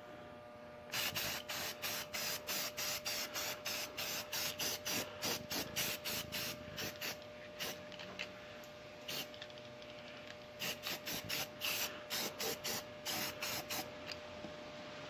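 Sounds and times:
spray can hissing: 0:00.9 - 0:07.8, 0:09.1 - 0:09.3, 0:10.6 - 0:13.9.

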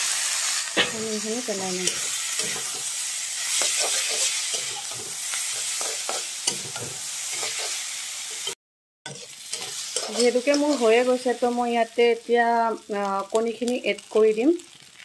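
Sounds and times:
noodles sizzling in a pan: 0:00.0 - 0:15.0
spatula scraping and knocking pan: 0:01.8 - 0:07.8, 0:08.4 - 0:11.0.

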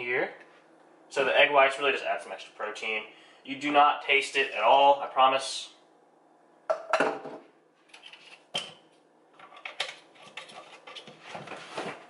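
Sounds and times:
containers knocking on counter: 0:06.7 - 0:07.4.

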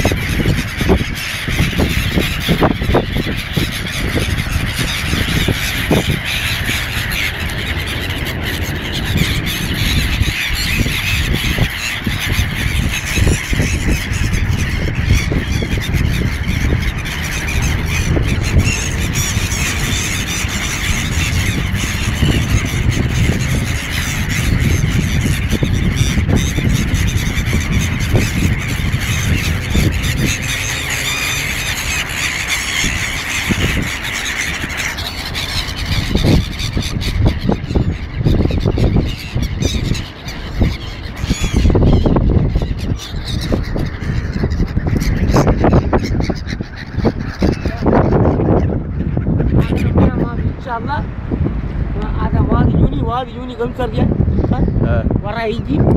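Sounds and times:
gulls squawking: 0:00.0 - 0:55.9
low rumble: 0:04.3 - 0:33.0.

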